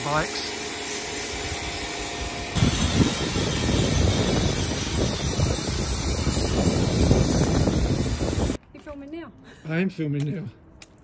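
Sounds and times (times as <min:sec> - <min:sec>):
pressure washer spraying water: 0:00.0 - 0:08.6.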